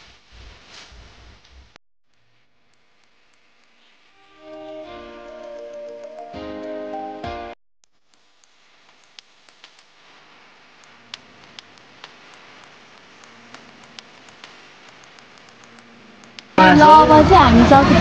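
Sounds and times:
floor hiss: 0.0 - 5.0, 8.0 - 18.0
violin music: 4.2 - 7.5.

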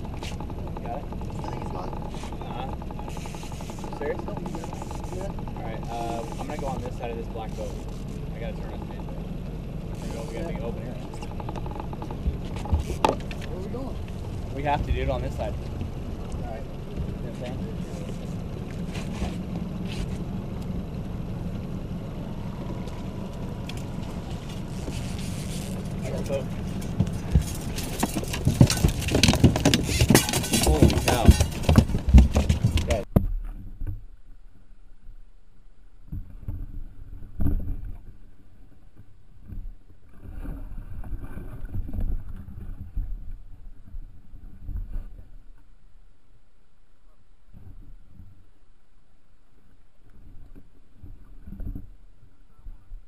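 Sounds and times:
boat motor humming: 0.0 - 33.1.

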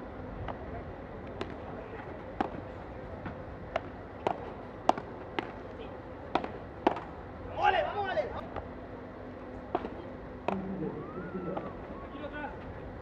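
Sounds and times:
padel ball hit by rackets: 6.3 - 7.1.

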